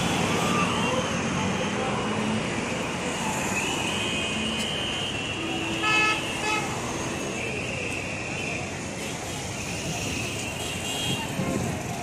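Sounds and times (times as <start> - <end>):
road traffic noise: 0.0 - 12.0
vehicle horn honking: 5.8 - 6.7.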